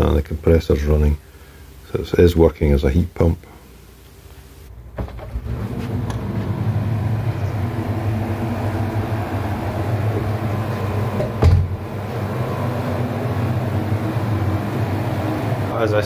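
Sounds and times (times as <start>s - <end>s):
air conditioner humming: 0.0s - 16.0s
knock: 11.2s - 11.7s.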